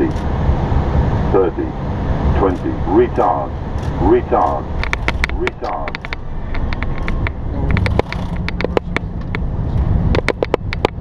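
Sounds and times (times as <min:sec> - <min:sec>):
airliner low rumble on runway: 0:00.0 - 0:11.0
sharp clicks and knocks: 0:04.8 - 0:11.0.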